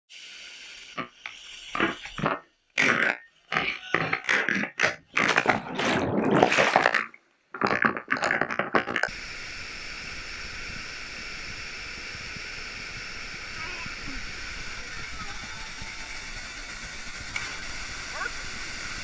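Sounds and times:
underwater churning and bubbling: 1.0s - 19.0s
water splashing: 4.3s - 8.4s.

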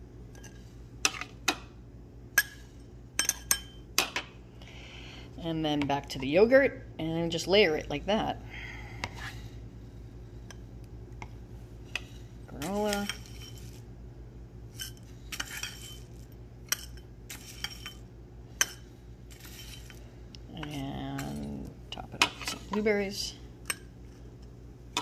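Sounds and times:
steady low hum: 0.0s - 25.0s
metal spoon clinking on glass: 3.2s - 3.8s.

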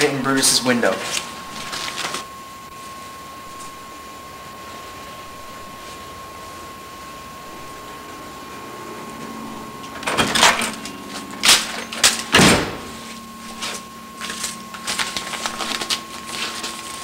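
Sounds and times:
door banging shut: 12.3s - 13.0s.

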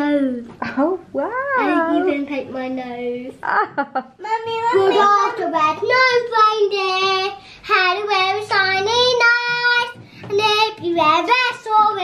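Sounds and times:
girl singing unaccompanied: 4.2s - 12.0s.

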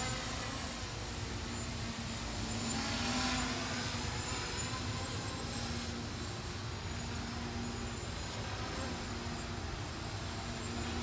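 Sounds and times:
quadcopter propellers whirring: 0.0s - 11.0s.

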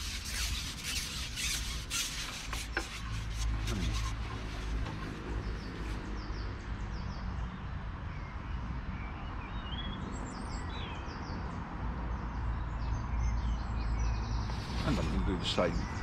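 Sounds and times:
birds calling and chirping: 12.6s - 16.0s.

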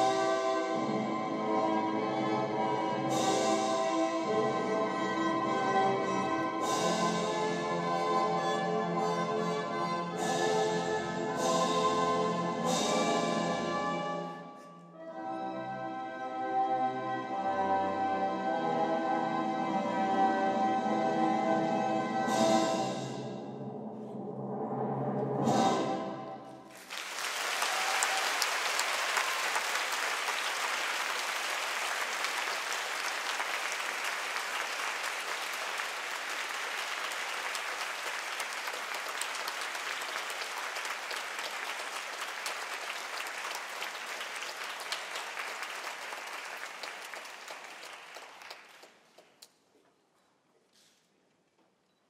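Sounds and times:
orchestral music: 0.0s - 26.9s
audience applauding: 26.7s - 49.4s.

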